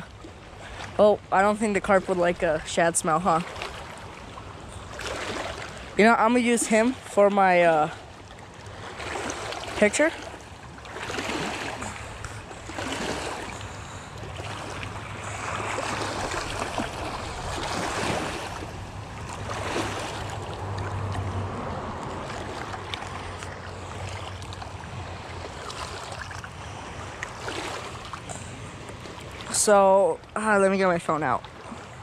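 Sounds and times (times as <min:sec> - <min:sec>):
waves lapping on rocky shore: 0:00.0 - 0:32.0
low rumble: 0:14.8 - 0:25.3.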